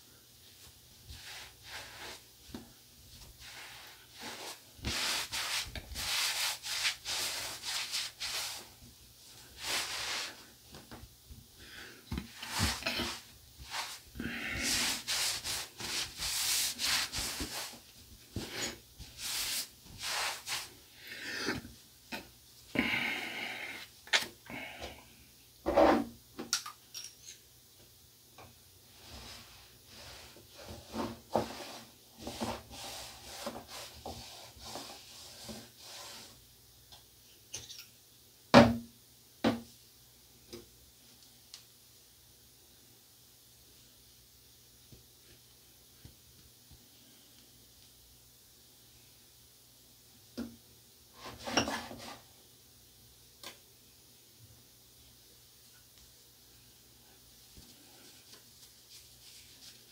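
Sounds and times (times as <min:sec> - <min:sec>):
towel rubbing over skin: 0:03.1 - 0:08.7, 0:09.6 - 0:10.5, 0:12.4 - 0:17.8, 0:19.1 - 0:20.7.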